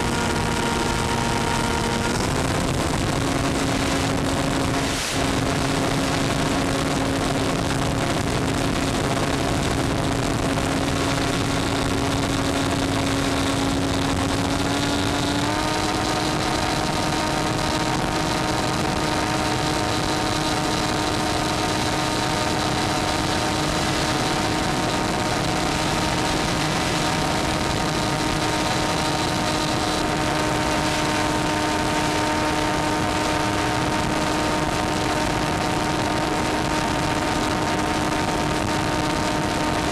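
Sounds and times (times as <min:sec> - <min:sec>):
model plane motor humming: 0:00.0 - 0:39.9
wind noise: 0:00.0 - 0:39.9.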